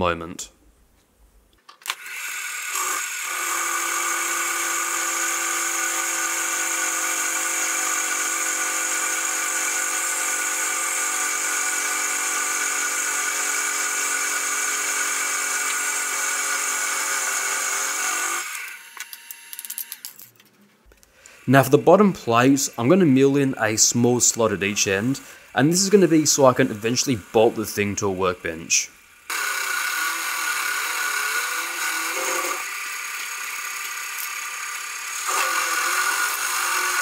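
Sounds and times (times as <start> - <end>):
milling machine cutting steel: 1.9 - 20.0, 29.3 - 37.0.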